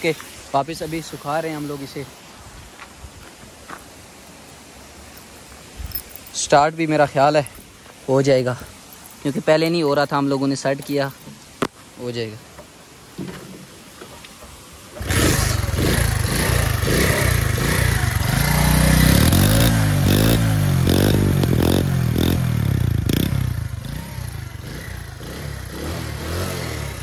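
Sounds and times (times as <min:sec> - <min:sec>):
motorcycle engine revving: 0:14.9 - 0:27.0.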